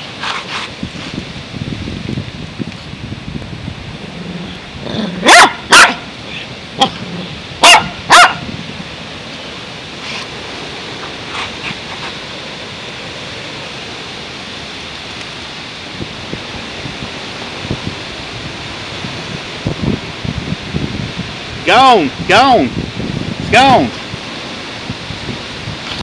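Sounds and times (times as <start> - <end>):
dog barking: 5.2 - 6.1, 7.6 - 8.5.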